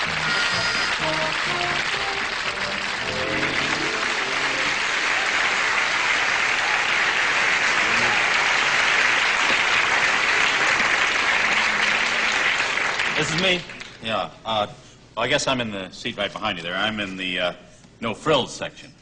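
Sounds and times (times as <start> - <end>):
band music: 0.0 - 5.0
audience applauding: 0.0 - 14.0.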